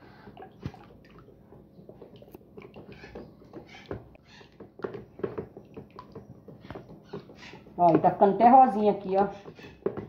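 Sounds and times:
spoon stirring wet mixture: 0.2s - 10.0s.

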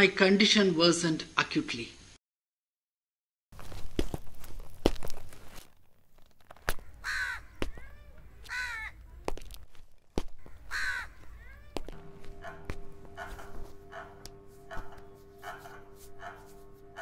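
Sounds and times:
crow cawing: 6.7s - 9.0s, 10.3s - 16.4s.

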